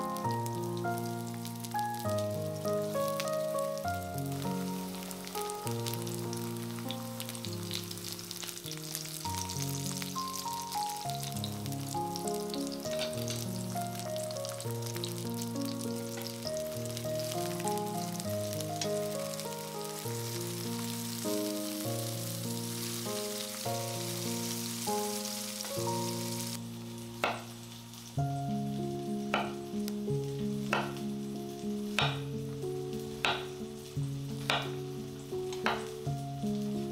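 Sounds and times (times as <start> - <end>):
background music melody: 0.0 - 36.9
food sizzling in oil: 0.0 - 36.9
sharp knock: 27.2 - 27.5.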